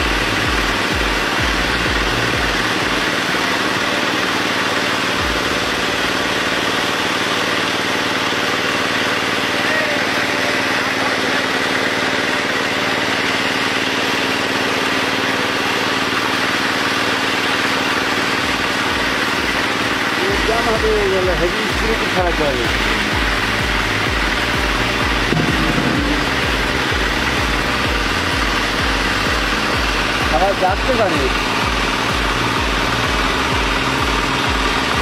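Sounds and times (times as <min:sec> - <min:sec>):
motor running steadily: 0:00.0 - 0:35.0
low thumps: 0:25.1 - 0:27.7.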